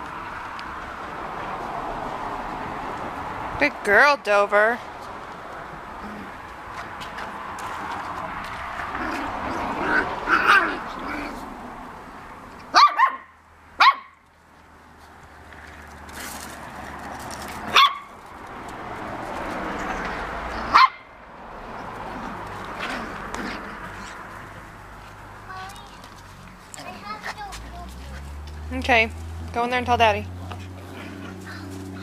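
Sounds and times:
puppies barking: 8.9s - 11.5s, 12.6s - 14.2s, 17.6s - 18.2s, 20.3s - 24.6s.

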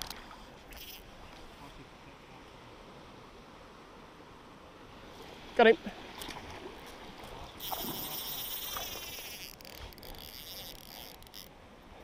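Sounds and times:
fly reel ratchet buzzing: 0.7s - 1.0s, 7.6s - 11.5s.

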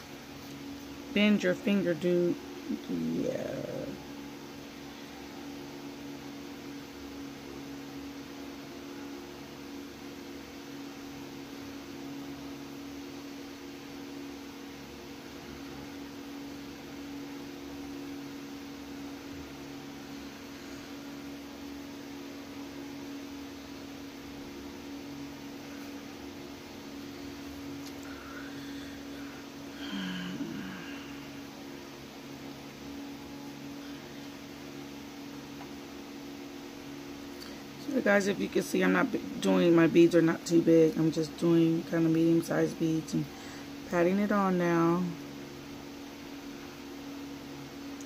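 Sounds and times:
small motor humming: 23.6s - 32.1s.

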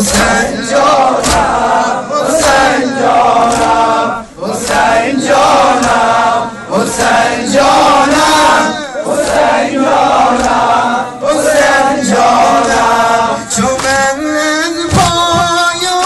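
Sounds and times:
crowd chanting a lament in unison: 0.0s - 16.0s
rhythmic chest-beating: 0.0s - 16.0s.

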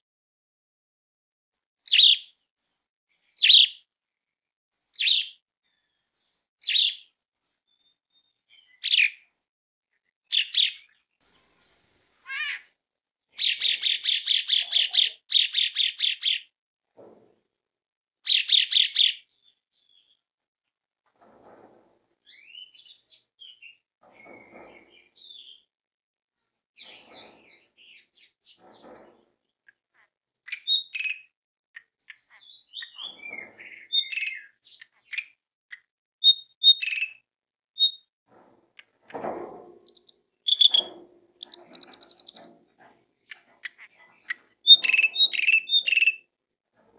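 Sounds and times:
bird whistles and chattering: 1.9s - 2.3s, 3.2s - 3.8s, 5.0s - 5.4s, 6.6s - 7.0s, 10.3s - 10.9s, 13.4s - 16.5s, 18.3s - 19.2s, 30.5s - 31.3s, 32.0s - 35.4s, 36.2s - 37.2s, 37.8s - 38.1s, 39.9s - 42.6s, 43.6s - 46.2s
starling singing: 13.3s - 16.5s, 29.9s - 35.4s, 36.2s - 37.2s, 39.8s - 42.7s, 43.3s - 46.3s
bird rattling phrases: 39.7s - 46.2s.

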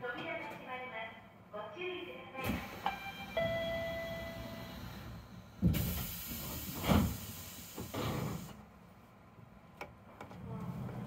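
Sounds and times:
doors sliding shut with air hiss: 4.3s - 8.6s.

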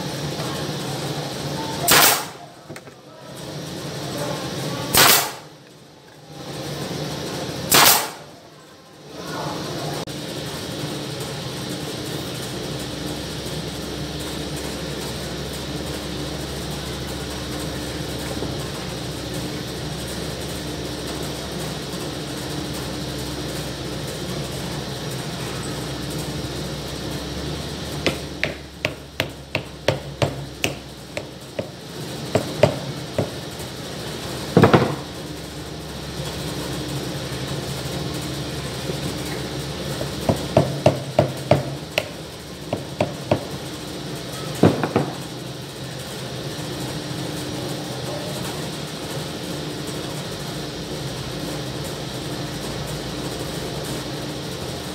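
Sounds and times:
steady hum: 0.0s - 47.9s
hammer tapping wood: 28.1s - 31.7s, 32.4s - 33.4s, 40.3s - 43.5s
heavier hammer knock: 28.1s - 31.7s.

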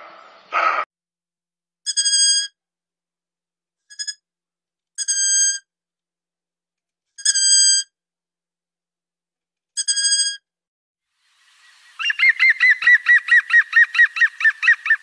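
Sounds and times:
owl calling: 11.6s - 15.0s.

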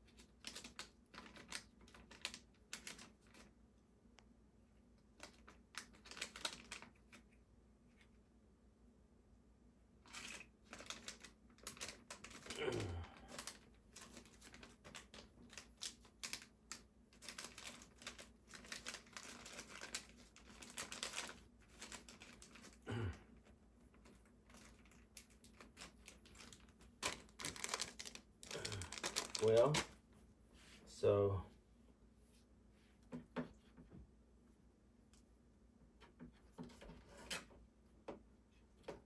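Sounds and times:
plastic parts clicking and rustling: 0.0s - 3.5s, 5.2s - 7.4s, 10.0s - 12.6s, 13.2s - 22.8s, 23.4s - 30.0s.

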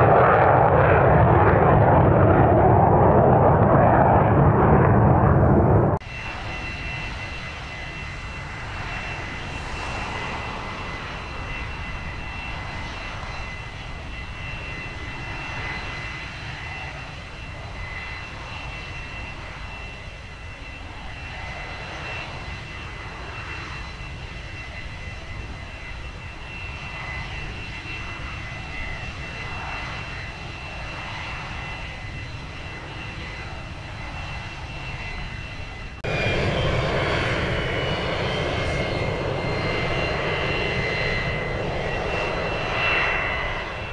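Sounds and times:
jet engine running: 0.0s - 43.9s.

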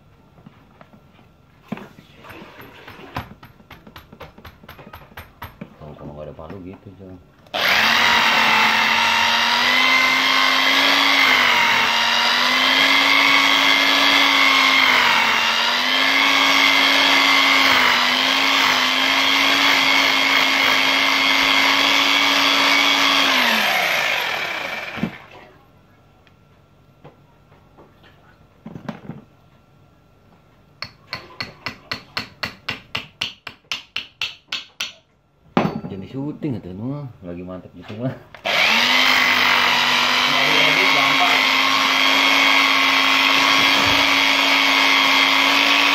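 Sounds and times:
electric drill boring into wall: 7.5s - 25.3s, 38.4s - 45.9s.

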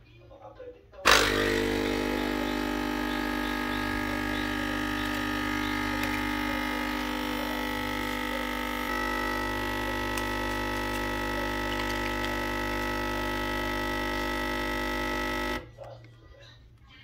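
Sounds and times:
coffee pouring into cup: 1.1s - 15.7s
coffee machine pump humming: 1.1s - 15.8s.

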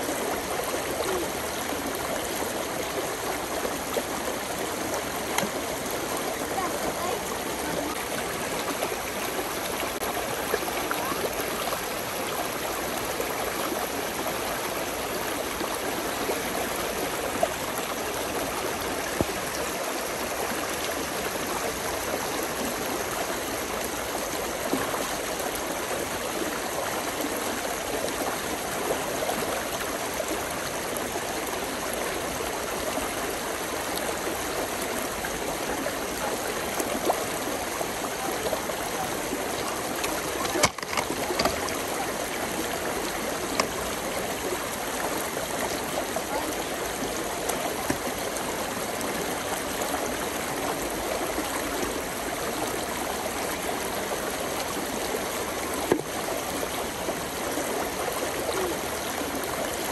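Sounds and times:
brook babbling: 0.0s - 59.9s
water splashes: 0.0s - 59.9s.

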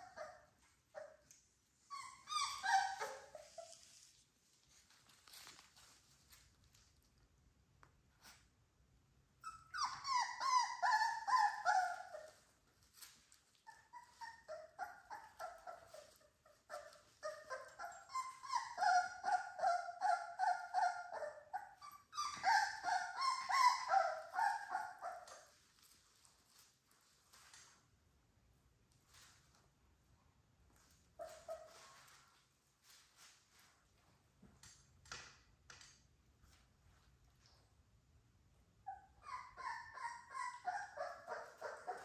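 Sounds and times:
puppies whining and yelping: 0.0s - 4.1s, 9.4s - 25.9s, 31.1s - 32.2s, 38.8s - 42.0s.

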